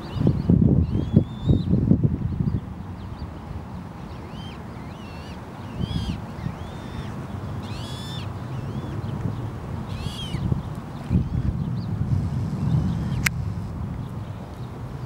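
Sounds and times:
goslings peeping: 0:04.0 - 0:09.2, 0:09.9 - 0:11.5.

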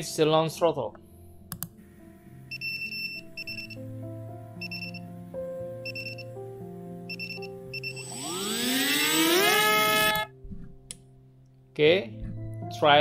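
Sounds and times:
soft chime-like background music: 0:02.1 - 0:08.3, 0:11.6 - 0:13.0
electric motor whine rising: 0:07.8 - 0:10.3.

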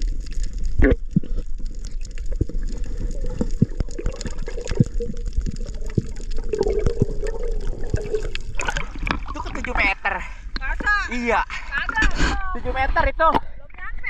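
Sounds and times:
muffled underwater water rush: 0:00.0 - 0:10.6
underwater clicks and knocks: 0:00.8 - 0:09.8.

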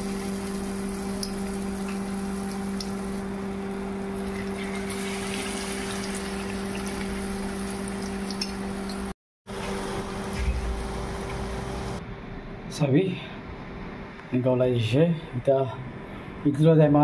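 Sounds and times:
batter sizzling in hot oil: 0:00.0 - 0:09.1
low steady hum: 0:00.0 - 0:17.0.

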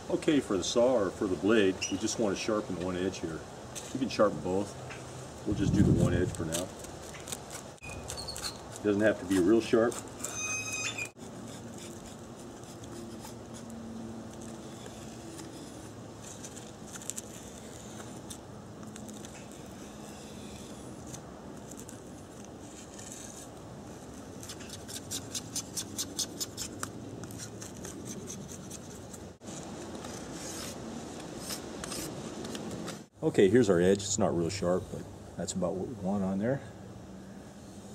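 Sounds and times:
knife scraping bamboo: 0:03.7 - 0:04.2, 0:05.8 - 0:33.1.

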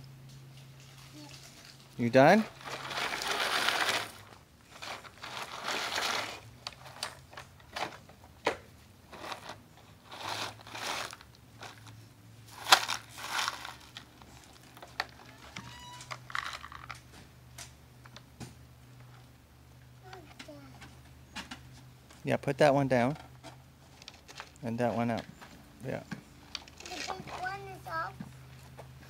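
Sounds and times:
toy loader scooping gravel: 0:01.1 - 0:08.0, 0:09.1 - 0:15.5, 0:26.6 - 0:28.1.

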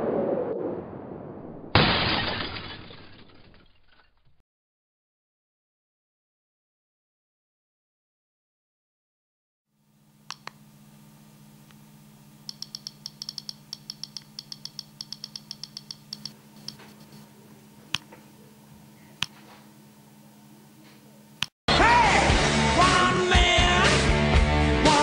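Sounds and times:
button press clicks: 0:10.3 - 0:10.6, 0:12.5 - 0:17.2, 0:17.9 - 0:18.2
click wheel ticking: 0:12.5 - 0:16.9
loud rock music: 0:21.7 - 0:25.0.

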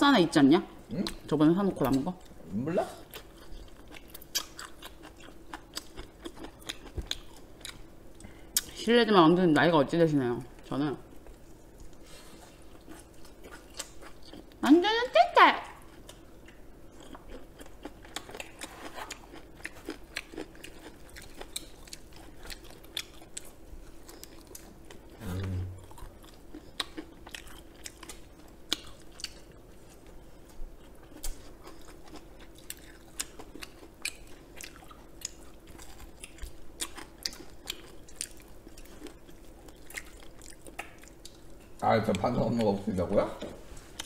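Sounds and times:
low hum from a voice: 0:00.0 - 0:04.2, 0:07.4 - 0:16.3, 0:20.2 - 0:27.0, 0:41.6 - 0:44.0
chewing crunchy fried chicken: 0:03.0 - 0:08.7, 0:10.6 - 0:14.6, 0:15.8 - 0:25.2, 0:25.8 - 0:42.9.

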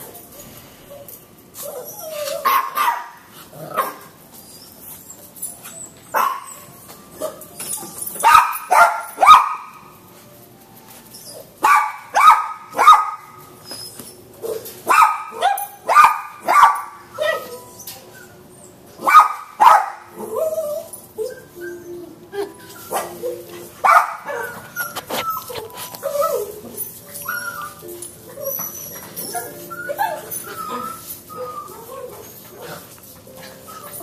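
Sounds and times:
puppy barking: 0:02.2 - 0:04.2, 0:06.1 - 0:07.4, 0:08.2 - 0:09.9, 0:11.6 - 0:13.4, 0:14.4 - 0:17.6, 0:19.0 - 0:20.8, 0:22.4 - 0:27.8.

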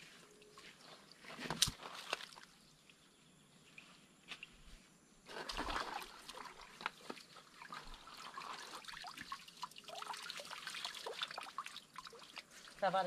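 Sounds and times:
water splashing and pouring: 0:01.2 - 0:02.5, 0:05.3 - 0:13.0
water dripping and trickling: 0:05.7 - 0:13.0.

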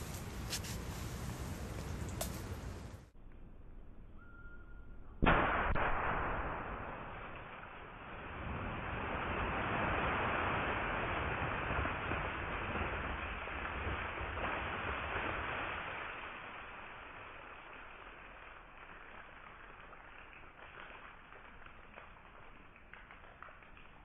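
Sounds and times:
water splashing down: 0:05.3 - 0:24.0.

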